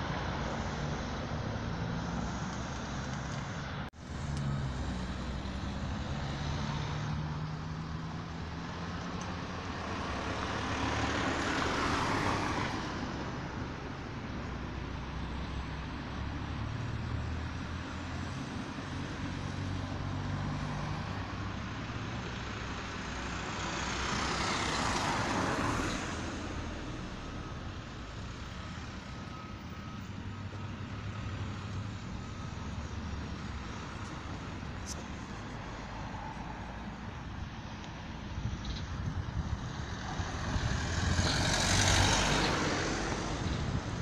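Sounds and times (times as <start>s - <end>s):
road traffic rumble: 0.0s - 44.0s
vehicle passing close: 39.0s - 44.0s.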